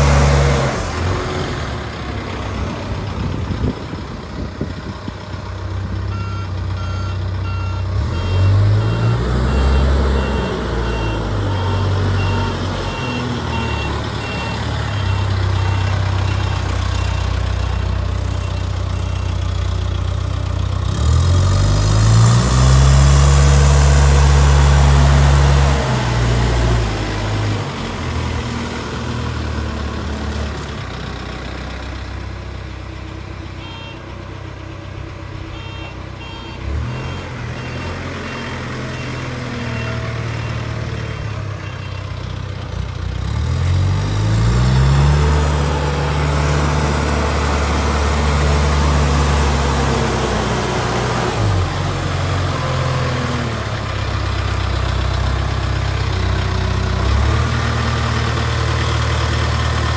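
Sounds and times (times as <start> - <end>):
diesel engine revving: 0.0 - 59.9
reversing alarm beeps: 6.1 - 17.2, 35.6 - 40.6.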